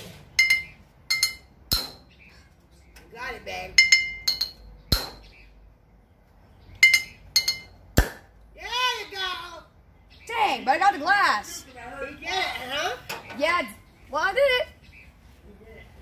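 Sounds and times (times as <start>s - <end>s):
knife clinking on glass bottle: 0.4s - 2.0s, 3.8s - 4.6s, 6.8s - 7.7s.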